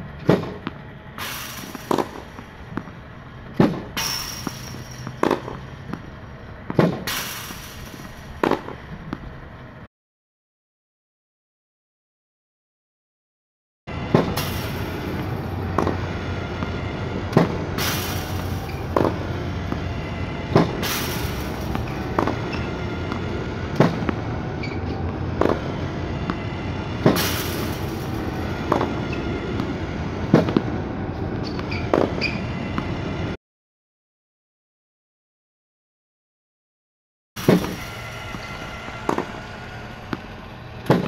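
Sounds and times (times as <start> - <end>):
ball machine motor hum: 0.0 - 9.8, 13.9 - 33.4, 37.4 - 41.0
ball launching pop: 0.2 - 6.1, 16.6 - 19.9, 20.5 - 24.7, 25.4 - 26.4, 27.0 - 29.0, 37.4 - 41.0.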